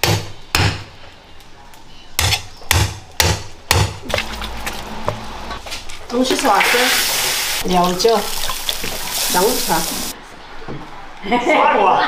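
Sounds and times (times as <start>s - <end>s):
cleaver chopping bone on wood: 2.2s - 4.2s.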